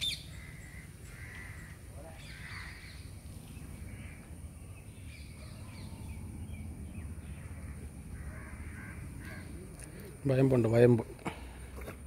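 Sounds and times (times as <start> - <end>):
faint bird calls: 0.0 - 11.7.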